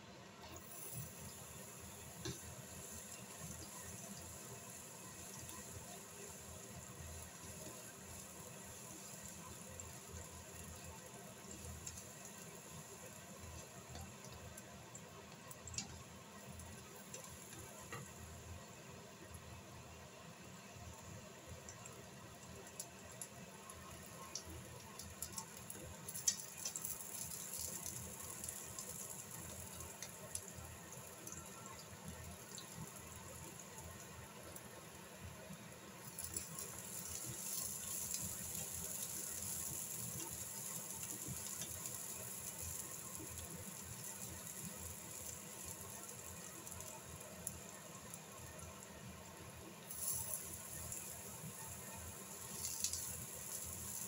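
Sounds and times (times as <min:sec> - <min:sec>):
vegetables sizzling in oil: 0:00.4 - 0:54.0.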